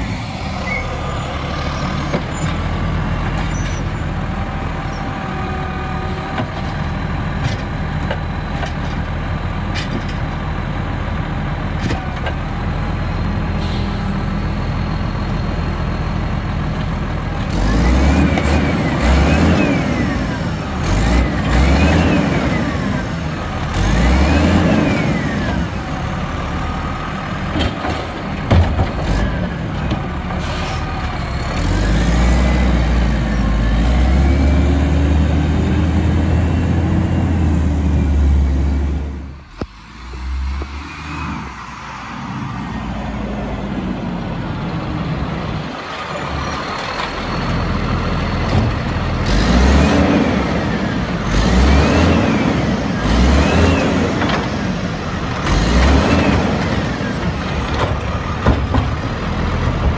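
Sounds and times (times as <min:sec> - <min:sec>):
garbage truck engine revving: 0:17.0 - 0:41.9, 0:44.5 - 0:59.9.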